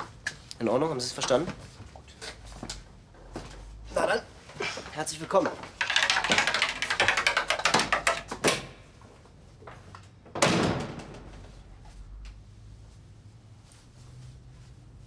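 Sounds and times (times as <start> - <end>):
knocks and clicks: 5.4 - 8.7
door banging shut: 10.3 - 11.6.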